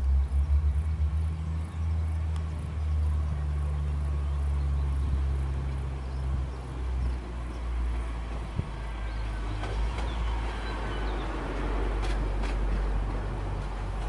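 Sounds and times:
diesel locomotive idling: 0.0s - 14.0s
passing train running noise: 0.0s - 14.0s.

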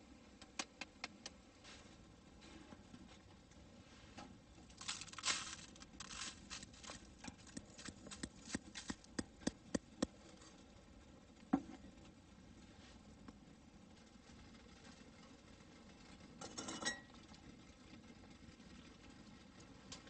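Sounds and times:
coffee grounds pouring into filter: 4.6s - 9.2s.

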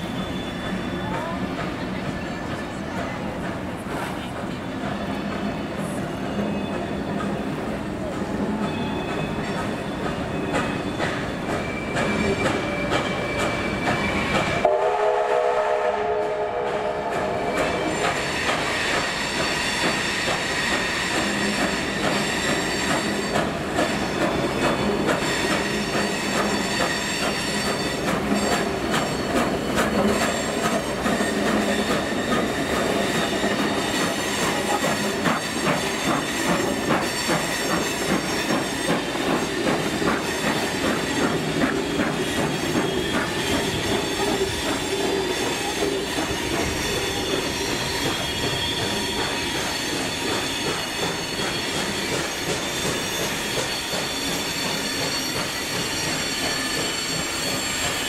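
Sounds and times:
train wheels clattering: 0.0s - 58.0s
train horn chord: 14.6s - 17.4s.

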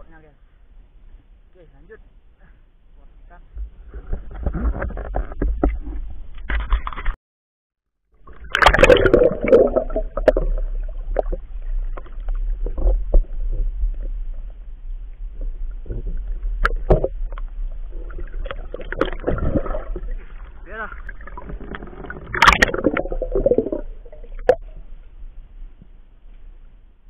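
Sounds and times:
muffled underwater river rumble: 2.1s - 6.5s, 8.2s - 27.0s
water splashing at the surface: 8.2s - 14.4s, 15.4s - 24.7s
rush of water and bubbles: 8.2s - 25.4s.

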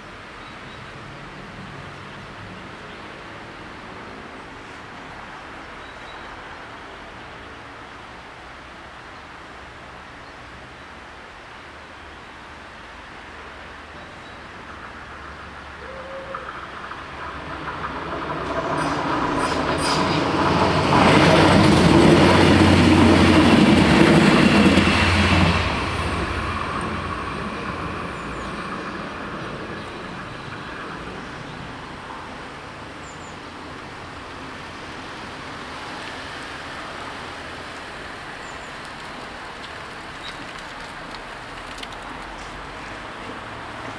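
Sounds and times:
road traffic noise: 0.0s - 43.9s
train engine drone: 14.6s - 38.4s
train wheels on rails: 14.6s - 43.9s.

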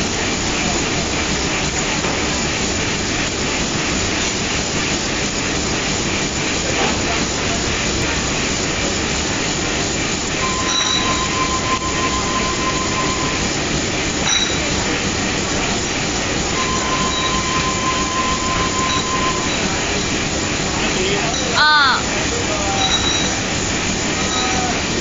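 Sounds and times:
printing press clattering: 0.0s - 25.0s
steady high tone: 10.4s - 13.6s, 16.5s - 20.2s, 21.2s - 22.1s.

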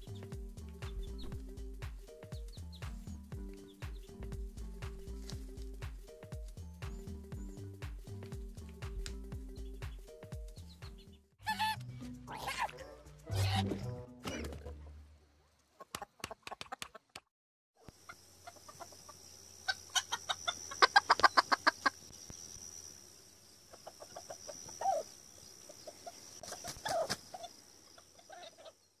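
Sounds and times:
steady high hiss: 17.9s - 28.0s.

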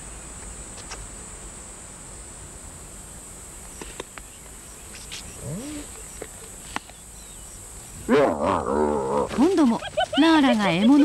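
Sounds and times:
steady high hiss: 0.0s - 11.0s
hyena call: 5.4s - 6.0s, 8.0s - 9.5s.

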